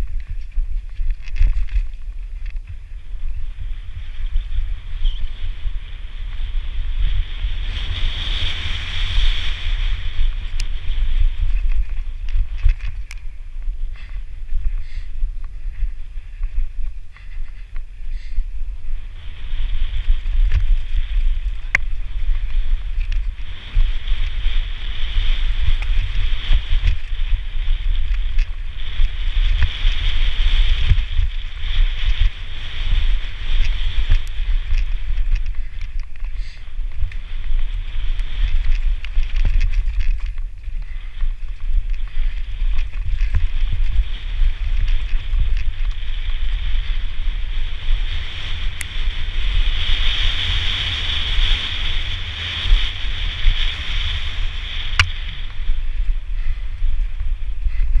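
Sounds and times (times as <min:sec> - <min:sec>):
bike rattling over rocks: 0:00.0 - 0:18.4, 0:19.1 - 0:58.0
wind buffeting microphone: 0:00.0 - 0:58.0.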